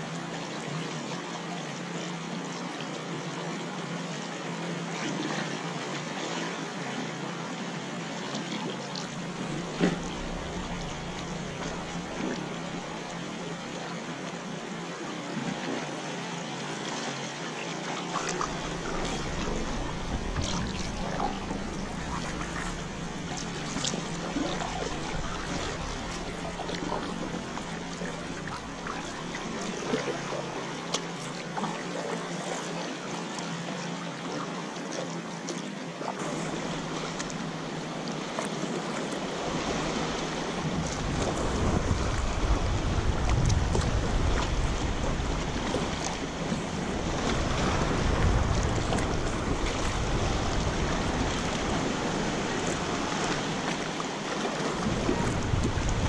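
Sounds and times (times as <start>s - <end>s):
water lapping and splashing: 0.0s - 56.0s
wind rumbling on microphone: 9.1s - 13.9s, 18.2s - 30.6s, 39.2s - 56.0s.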